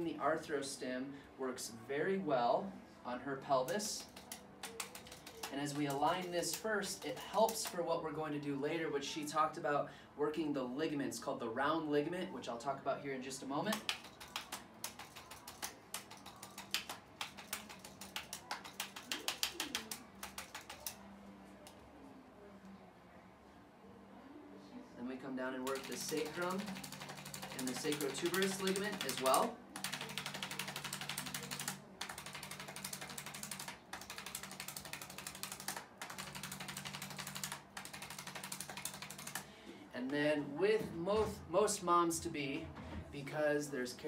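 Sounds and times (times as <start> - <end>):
rapid instrument clicks: 13.7 - 21.0, 25.6 - 39.4.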